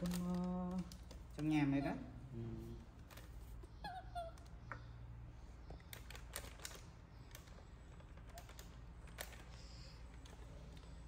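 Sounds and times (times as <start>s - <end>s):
foil packet crinkling: 0.0s - 1.6s, 5.8s - 10.0s.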